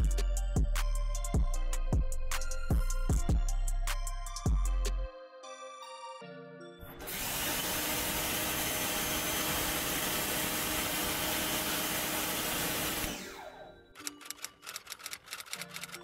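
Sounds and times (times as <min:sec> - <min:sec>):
pressure washer water jet hissing: 0:07.0 - 0:13.3.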